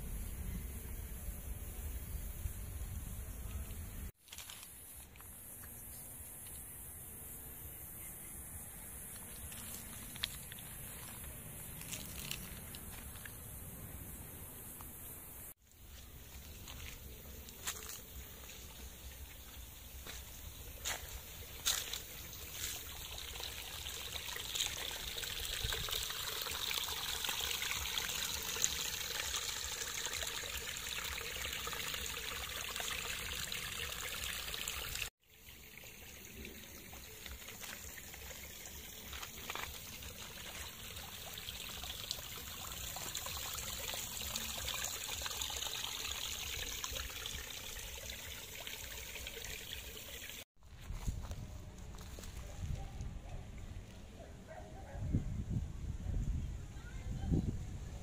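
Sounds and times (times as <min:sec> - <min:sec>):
water trickling and splashing: 0:09.1 - 0:13.5, 0:15.6 - 0:51.4.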